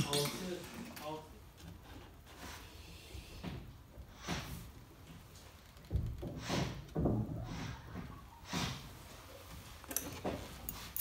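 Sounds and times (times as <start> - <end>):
wire rustling: 9.0 - 11.0.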